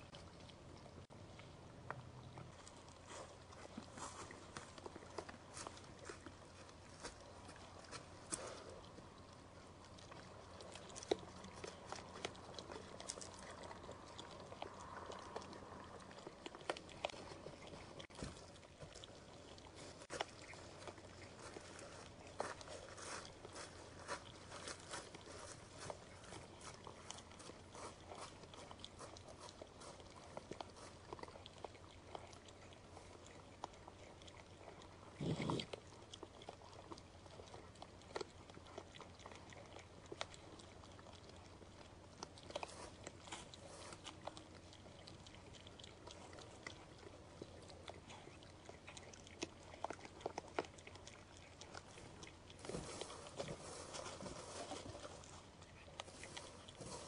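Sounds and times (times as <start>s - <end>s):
deer feeding crunches: 0.0s - 57.0s.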